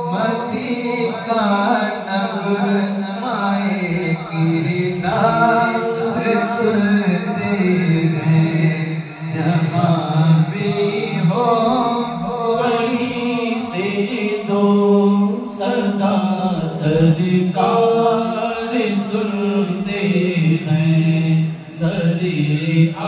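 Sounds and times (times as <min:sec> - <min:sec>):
man chanting devotional song: 0:00.0 - 0:23.0.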